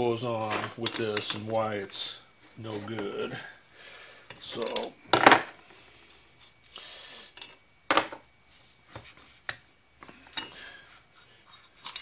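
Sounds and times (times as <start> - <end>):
metal parts rubbing: 11.2 - 12.0.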